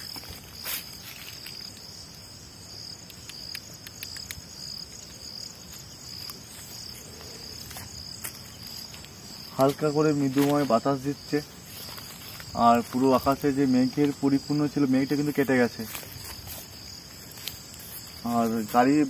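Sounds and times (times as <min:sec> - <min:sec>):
crickets chirring: 0:00.0 - 0:19.0
faint clicks: 0:03.0 - 0:04.5.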